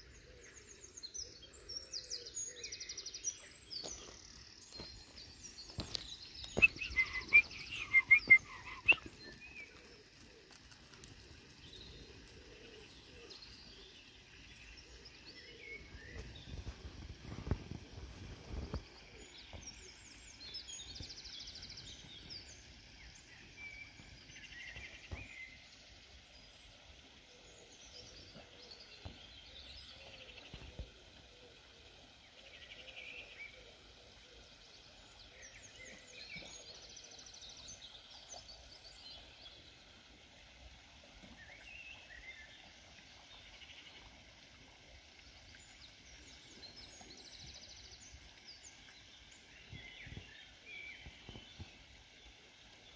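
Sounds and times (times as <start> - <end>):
birds chirping and trilling: 4.7 - 9.7.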